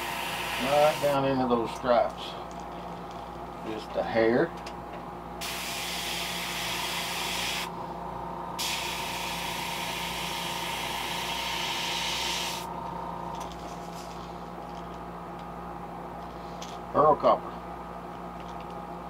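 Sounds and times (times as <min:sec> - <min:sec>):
airbrush hissing: 0:00.0 - 0:01.2, 0:05.4 - 0:07.7, 0:08.6 - 0:12.7
faint steady hum: 0:00.0 - 0:19.0.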